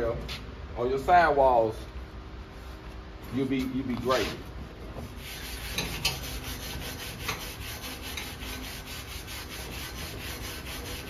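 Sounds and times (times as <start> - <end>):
wire brush scrubbing steel: 5.2 - 11.0.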